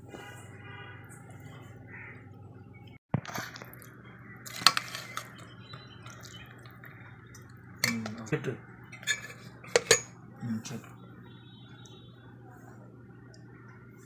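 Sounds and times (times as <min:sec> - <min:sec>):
metal spoon clinking on pot: 0:08.9 - 0:10.1.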